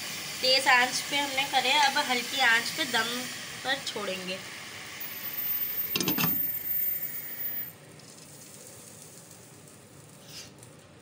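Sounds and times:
pot bubbling with a hiss: 0.0s - 11.0s.

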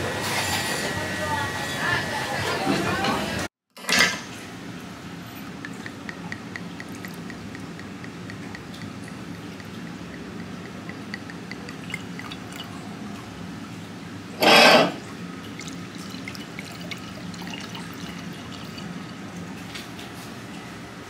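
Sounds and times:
steady low hum: 4.4s - 14.4s
wine pouring into glass: 5.5s - 12.9s, 15.4s - 19.3s.

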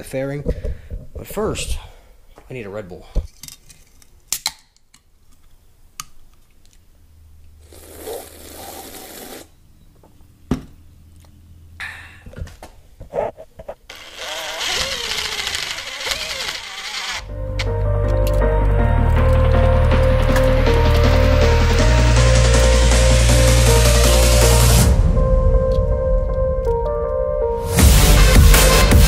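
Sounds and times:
power tool whirring: 13.9s - 17.3s.

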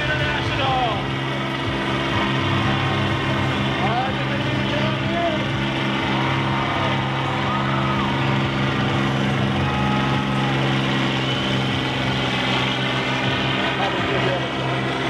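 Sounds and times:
combine harvester engines droning: 0.0s - 15.0s.

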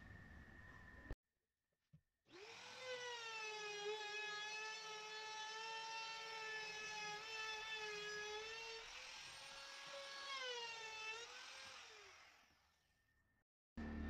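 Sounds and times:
router high whine: 13.8s - 14.0s.

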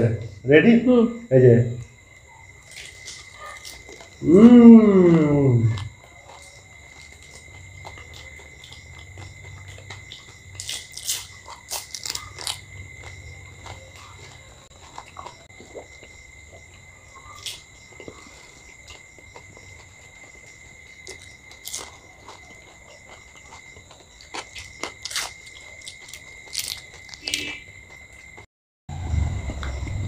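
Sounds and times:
crunching and chewing: 1.8s - 30.0s
high-pitched whine: 28.9s - 30.0s.

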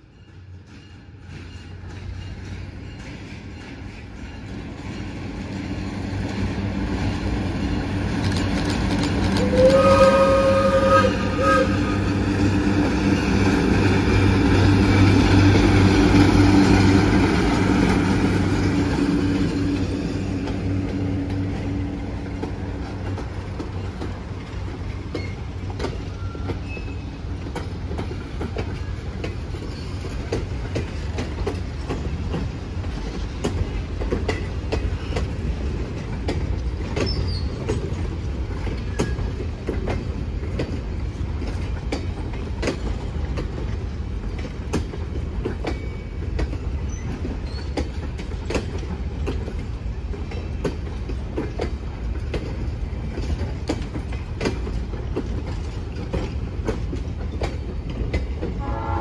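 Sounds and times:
diesel locomotive engine: 0.0s - 59.0s
train horn blast: 9.3s - 12.3s, 58.6s - 59.0s.

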